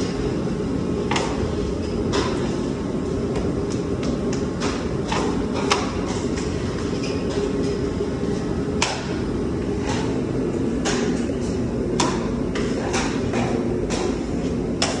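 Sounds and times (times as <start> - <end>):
steady low hum: 0.0 - 15.0.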